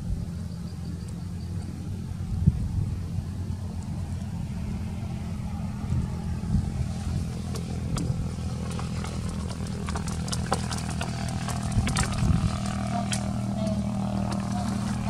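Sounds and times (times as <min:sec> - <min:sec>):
engine running drone: 0:00.0 - 0:15.0
sharp clicks and crackles: 0:07.3 - 0:15.0.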